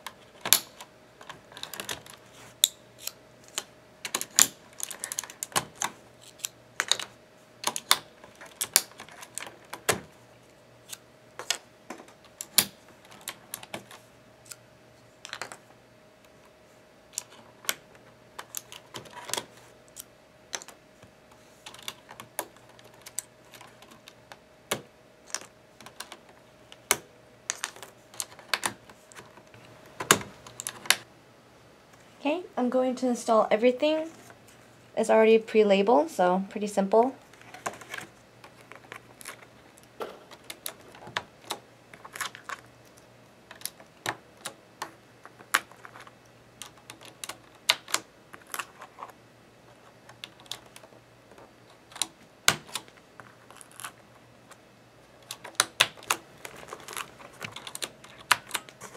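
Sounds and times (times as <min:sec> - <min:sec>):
faint steady hum: 0:00.0 - 0:58.9
plastic keycaps clicking: 0:55.2 - 0:58.9.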